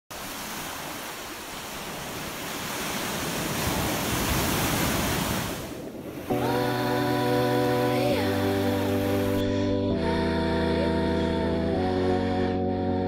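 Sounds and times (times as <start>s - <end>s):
waves breaking against jetty: 0.1s - 6.6s
music with sustained notes: 6.3s - 13.0s.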